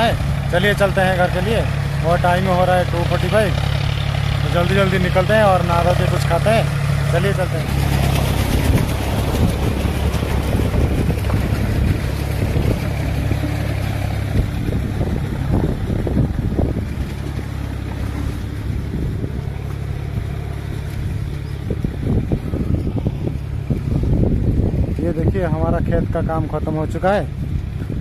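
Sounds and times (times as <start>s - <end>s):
tractor engine droning: 0.0s - 28.0s
wind rumble on microphone: 7.6s - 28.0s.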